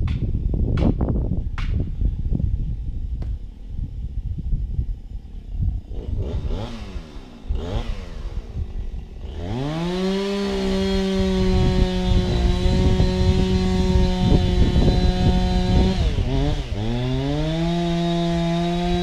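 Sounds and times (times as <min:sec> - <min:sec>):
chainsaw cutting wood: 0:05.8 - 0:19.0
chainsaw revving: 0:05.8 - 0:19.0.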